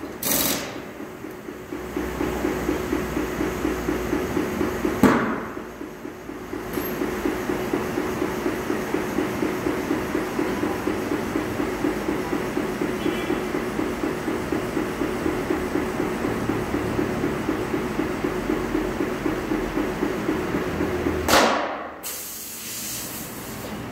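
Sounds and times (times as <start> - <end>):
machinery rhythmic mechanical clatter: 0.0 - 22.0
sharp loud bang: 21.3 - 22.0.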